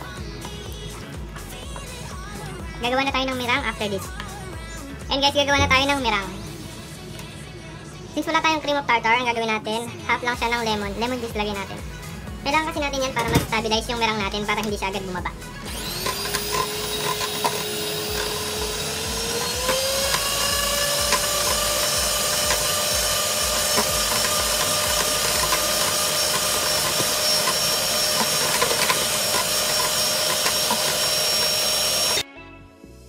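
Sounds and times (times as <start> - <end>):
electric hand mixer whining: 15.4 - 32.2.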